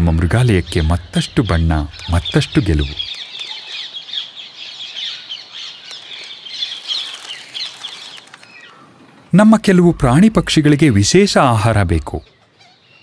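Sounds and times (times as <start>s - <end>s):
parakeets screeching: 0.3s - 8.8s.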